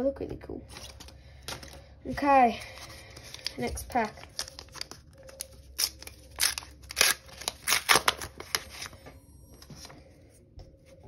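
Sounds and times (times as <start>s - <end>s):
foil wrapper tearing and crinkling: 3.2s - 8.9s.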